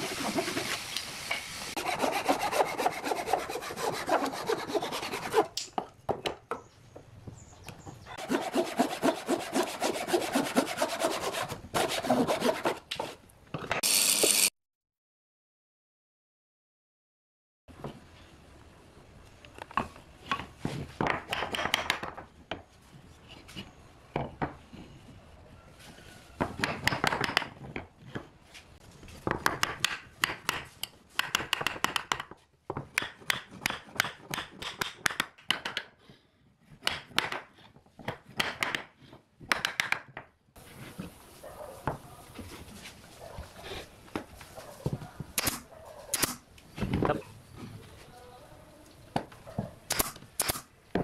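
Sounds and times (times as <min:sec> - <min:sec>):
wood rubbing on wood: 0:00.0 - 0:01.0, 0:01.8 - 0:05.6, 0:08.2 - 0:13.2
steady hiss: 0:00.0 - 0:01.8.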